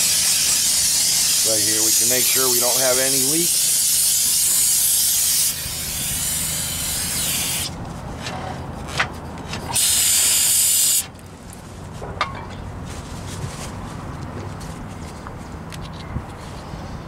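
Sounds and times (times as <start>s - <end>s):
spray can hissing: 0.0s - 7.7s, 9.8s - 11.1s.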